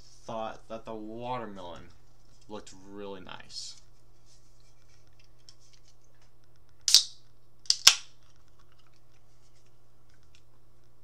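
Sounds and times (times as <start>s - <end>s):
can pull tab cracking open: 6.8s - 8.6s.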